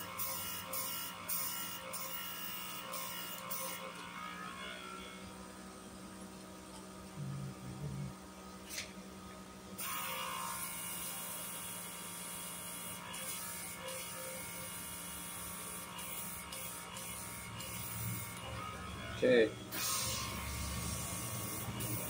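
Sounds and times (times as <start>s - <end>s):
small electric motor whirring: 0.0s - 5.4s, 9.8s - 22.0s.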